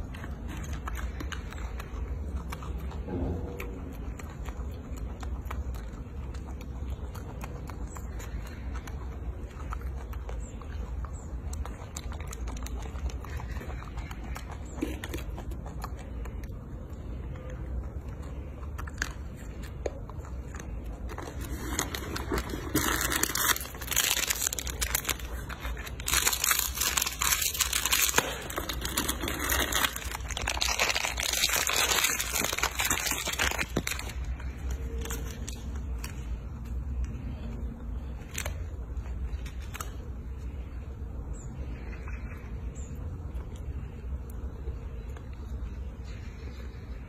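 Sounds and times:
plastic bag crinkling: 21.1 - 36.4.

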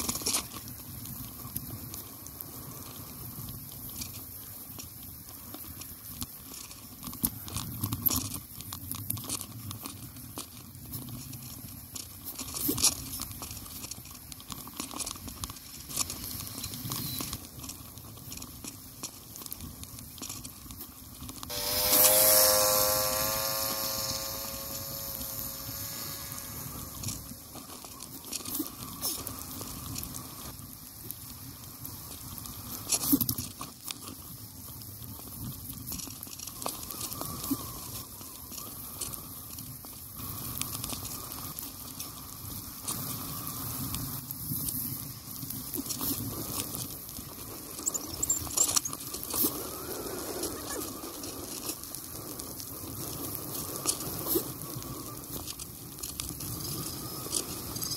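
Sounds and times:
bike tyres crunching on snow: 0.0 - 57.9
small clicks: 0.0 - 57.9
pitched hum falling in pitch: 21.5 - 27.1.

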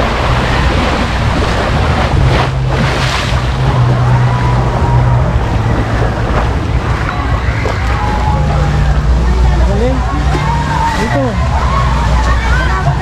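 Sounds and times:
wind buffeting microphone: 0.0 - 9.7
pool water rushing and splashing: 0.0 - 13.0
steady low hum: 0.0 - 13.0.

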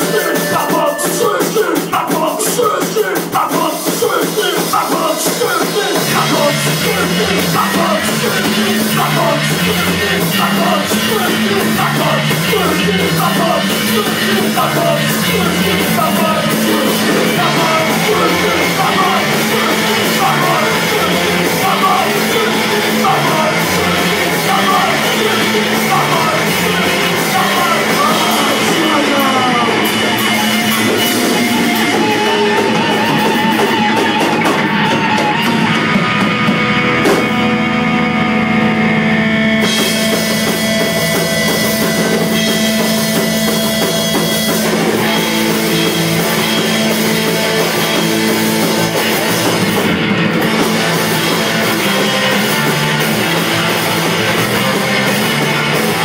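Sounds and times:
person singing: 0.0 - 37.4
punk rock band playing live: 0.0 - 56.0.

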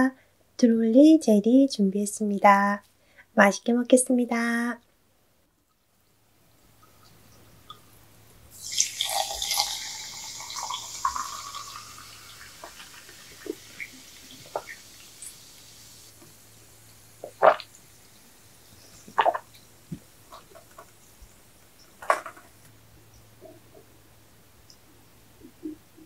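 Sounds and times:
mouth clicks: 17.2 - 17.8.

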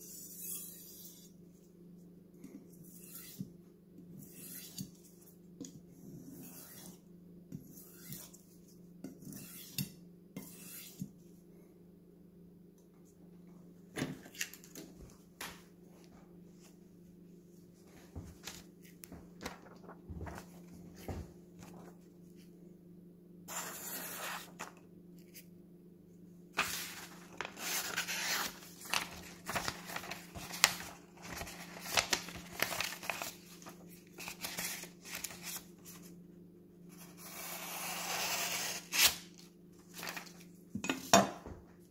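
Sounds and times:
low steady hum: 4.8 - 41.9
paper rustling: 18.2 - 22.0, 26.6 - 36.1, 39.8 - 40.5
knife slicing paper: 23.5 - 24.7, 26.6 - 35.6, 37.2 - 39.3.

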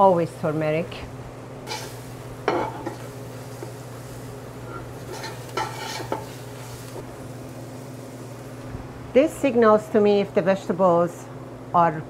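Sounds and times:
light sizzle: 0.0 - 11.2
metal spoon scraping a pot: 4.6 - 6.3.

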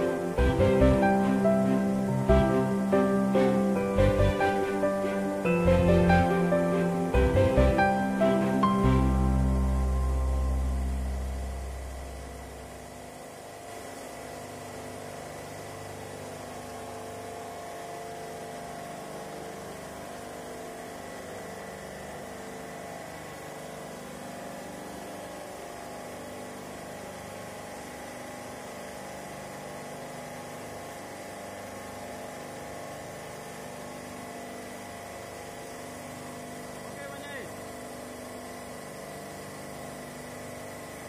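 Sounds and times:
thin high whine: 0.0 - 13.6
refrigeration machinery humming: 0.0 - 41.0.

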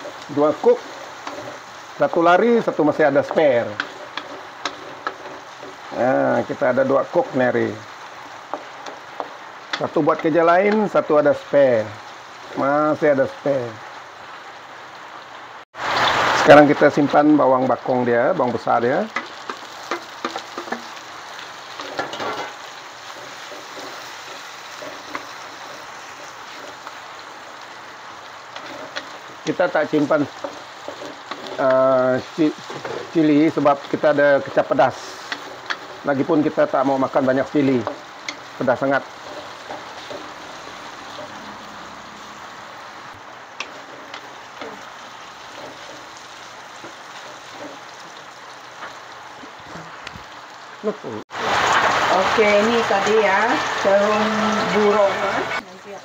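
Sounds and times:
onions sizzling in hot oil: 0.0 - 56.0
stirring clicks: 3.3 - 6.0, 30.2 - 31.8, 37.8 - 41.4, 43.6 - 48.2.

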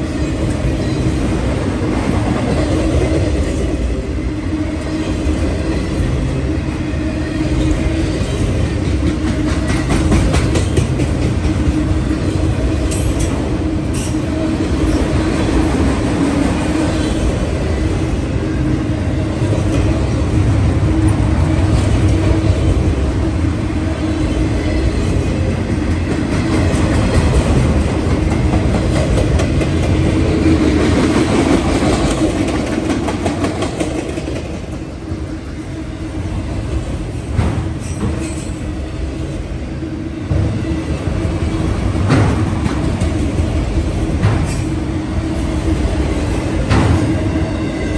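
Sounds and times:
train wheels rumbling on rails: 0.0 - 47.9
train wheels clacking: 7.5 - 18.0, 24.2 - 35.4, 36.5 - 39.4, 40.3 - 47.9.

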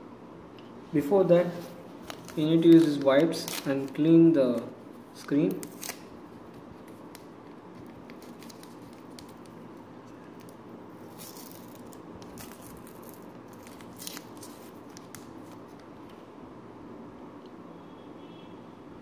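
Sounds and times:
foil sachet tearing and crinkling: 1.6 - 4.0, 5.2 - 15.7.

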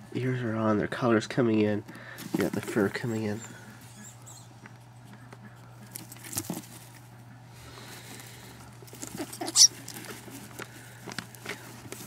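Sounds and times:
straw and fur rustling: 5.8 - 7.1, 7.8 - 12.0.

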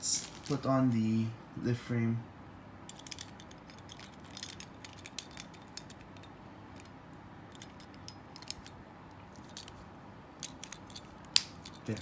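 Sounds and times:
plastic toy parts clicking: 2.9 - 6.9, 7.5 - 8.8, 10.4 - 12.0.

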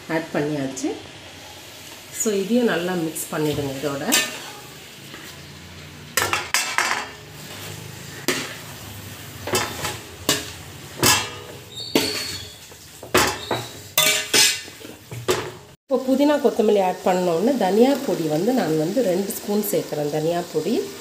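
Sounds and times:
chicken sizzling: 0.0 - 21.0
spatula clanking and scraping pot: 3.4 - 5.4, 6.2 - 15.8.

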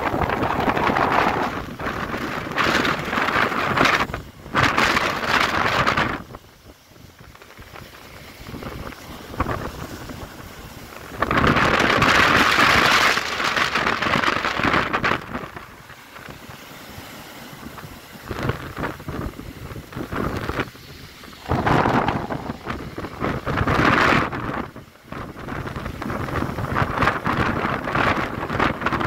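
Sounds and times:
surf and spray hissing: 0.0 - 29.0
waves crashing against harbour wall: 0.0 - 29.0.

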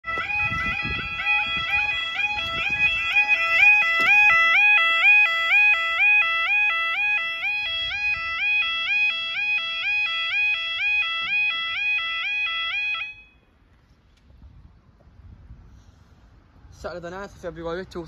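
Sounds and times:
crossing alarm two-tone warble: 0.0 - 13.6.

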